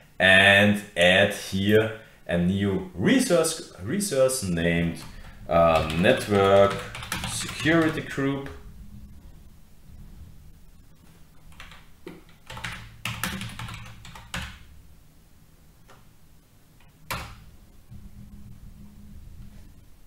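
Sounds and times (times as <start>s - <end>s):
low steady hum: 0.0s - 20.0s
typing on computer keyboard: 5.0s - 8.1s, 11.5s - 14.6s.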